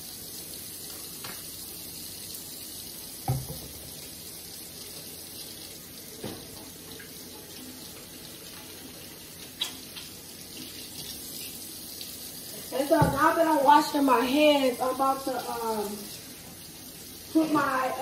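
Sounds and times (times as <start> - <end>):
hands washing under tap: 2.9 - 18.0
tap running into sink: 3.2 - 4.0, 6.2 - 7.1, 12.9 - 13.4.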